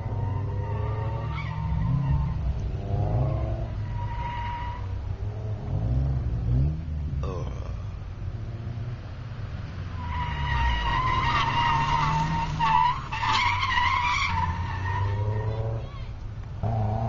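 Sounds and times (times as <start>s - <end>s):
car engine running and revving: 0.0s - 4.0s, 4.8s - 13.0s, 14.3s - 17.0s
tyres squealing: 10.0s - 16.2s.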